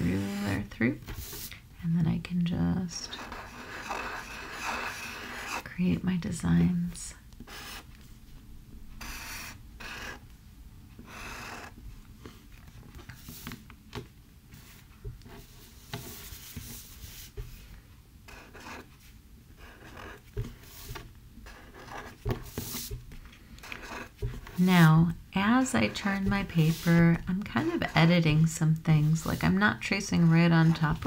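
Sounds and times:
marker scratching on paper: 0:03.1 - 0:05.6, 0:07.5 - 0:07.9, 0:09.0 - 0:10.2, 0:11.0 - 0:11.8, 0:18.3 - 0:18.9, 0:19.6 - 0:23.0, 0:23.6 - 0:31.0.

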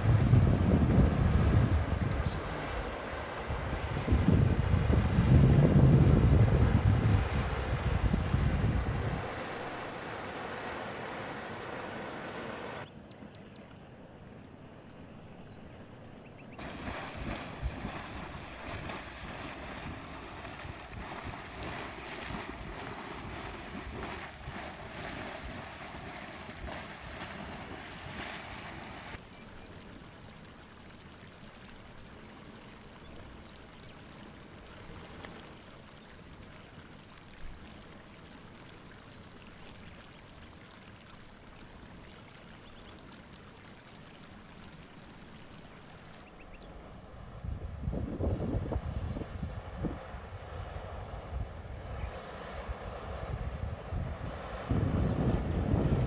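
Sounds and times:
hot spring surging and splashing: 0:00.0 - 0:12.9, 0:16.5 - 0:47.0.

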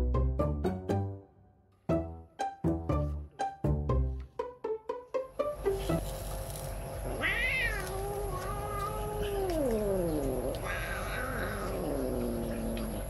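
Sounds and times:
cat growling yowls: 0:07.1 - 0:13.0.

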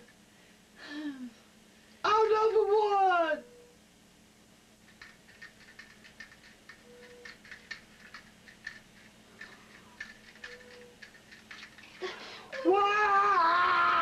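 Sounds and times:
low steady hum: 0:00.0 - 0:14.0
faint irregular clicking: 0:04.8 - 0:12.7.

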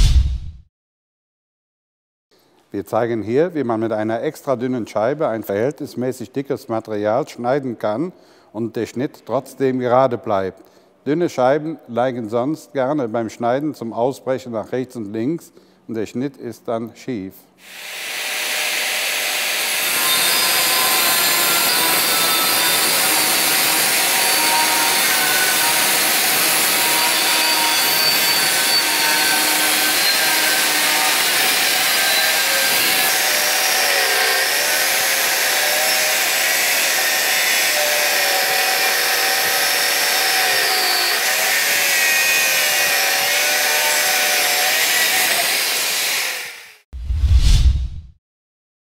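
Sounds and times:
angle grinder cutting steel: 0:17.6 - 0:46.9.

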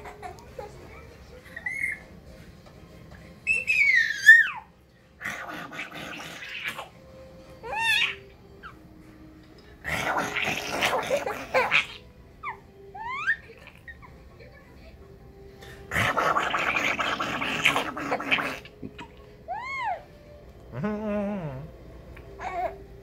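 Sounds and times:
baby laughing and squealing: 0:01.4 - 0:02.1, 0:03.5 - 0:04.7, 0:07.6 - 0:08.8, 0:10.2 - 0:14.2, 0:19.5 - 0:20.1.

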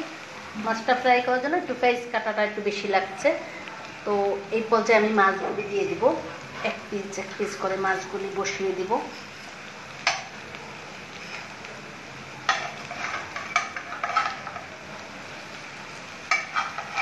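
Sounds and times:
paste sizzling in oil: 0:00.0 - 0:17.0
metal spatula scraping frying pan: 0:11.1 - 0:11.5, 0:12.5 - 0:14.7, 0:16.2 - 0:17.0.

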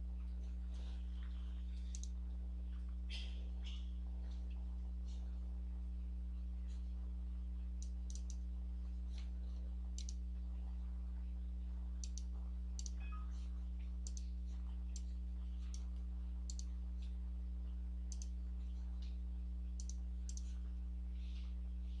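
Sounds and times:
low electrical hum: 0:00.0 - 0:22.0
mouse button clicks: 0:10.0 - 0:10.2, 0:12.0 - 0:13.1, 0:16.5 - 0:16.7.

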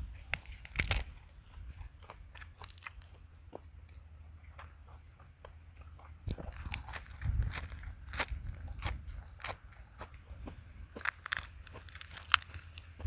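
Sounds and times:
wind rumble on microphone: 0:00.0 - 0:02.4, 0:06.2 - 0:11.1
crunchy chewing of lettuce: 0:00.2 - 0:13.0.

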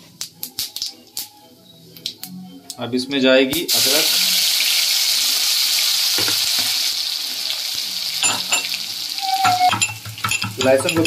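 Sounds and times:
ginger sizzling in hot oil: 0:03.7 - 0:11.0.

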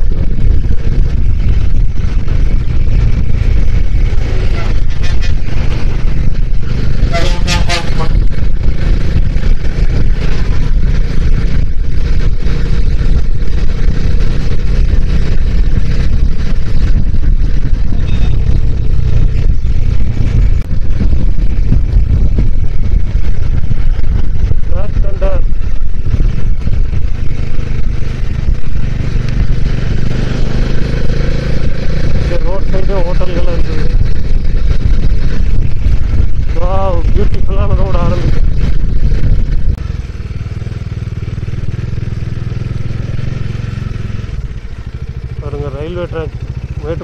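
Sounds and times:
wind rumble on microphone: 0:00.0 - 0:45.5
motorcycle engine cruising: 0:00.0 - 0:47.0
vehicle horn: 0:07.0 - 0:08.2.

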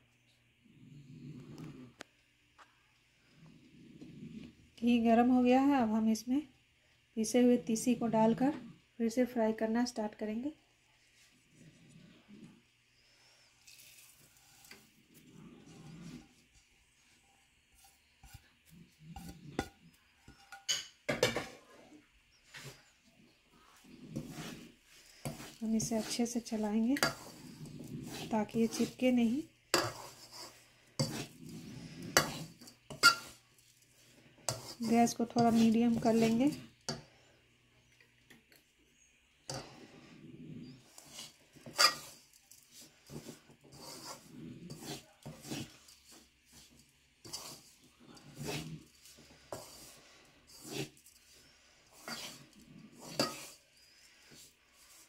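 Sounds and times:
spatula scraping metal pan: 0:13.2 - 0:37.2, 0:39.5 - 0:55.0.

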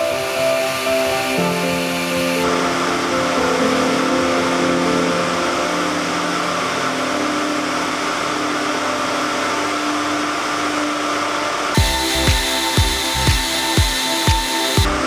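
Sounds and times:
roving frame machine running: 0:06.3 - 0:15.0
held tones: 0:11.8 - 0:15.0.

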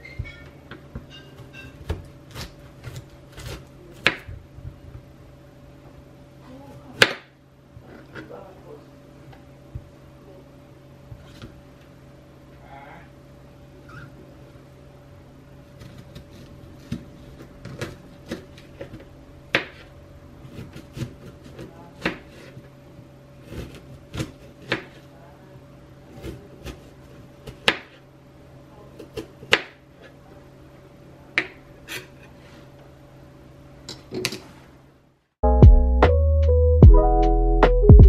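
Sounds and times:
knife cutting fruit: 0:01.4 - 0:04.3.

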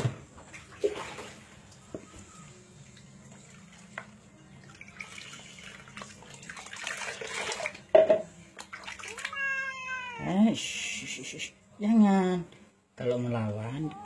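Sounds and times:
water pouring and splashing: 0:00.5 - 0:01.9, 0:02.8 - 0:09.5.

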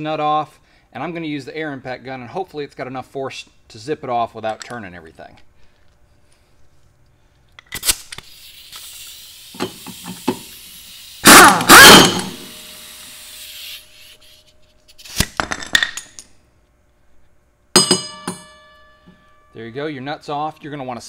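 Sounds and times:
steady air hiss: 0:08.0 - 0:15.1
impact wrench hammering: 0:11.2 - 0:12.6, 0:17.8 - 0:19.2.

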